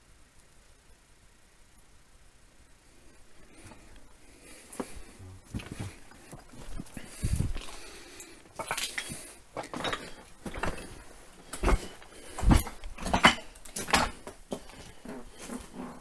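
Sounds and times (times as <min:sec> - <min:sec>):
footsteps crunching on rubble: 0:04.7 - 0:16.0.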